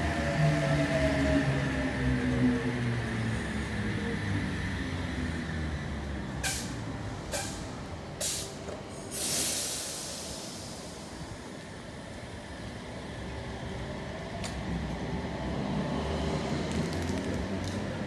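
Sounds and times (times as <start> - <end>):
air hissing: 8.2 - 11.4.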